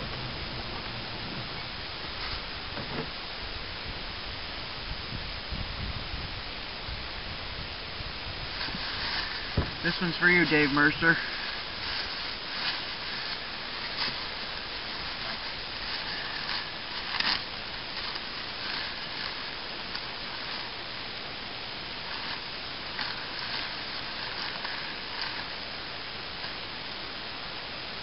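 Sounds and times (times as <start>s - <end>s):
steady hiss: 0.0s - 28.0s
paper and plastic crinkling: 8.5s - 20.8s, 22.0s - 25.6s.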